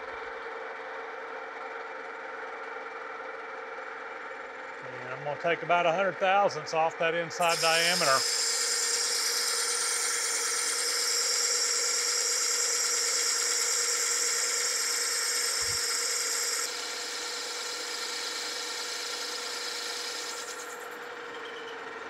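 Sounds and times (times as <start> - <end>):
lathe running hum: 0.0 - 22.0
lathe cutting whine: 5.5 - 22.0.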